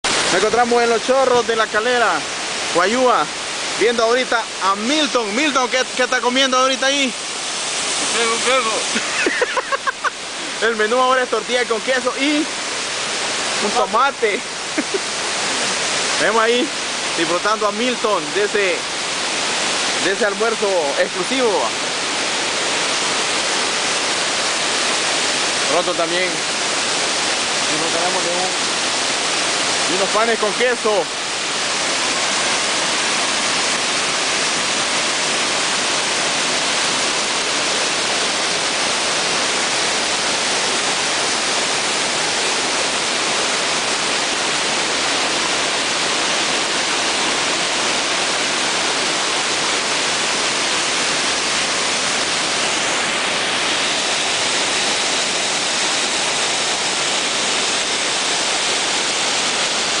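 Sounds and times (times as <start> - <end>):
waterfall rushing: 0.0 - 60.0.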